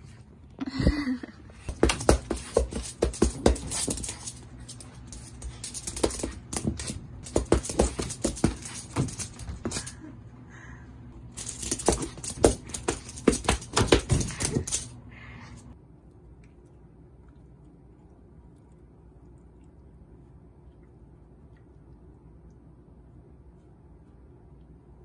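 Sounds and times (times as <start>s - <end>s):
puppy claws scrabbling on wooden floor: 1.7s - 9.9s, 11.3s - 15.0s.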